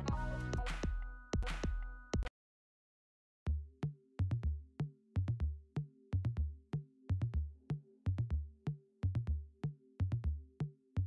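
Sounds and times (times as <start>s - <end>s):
drum-machine beat: 0.0s - 2.3s.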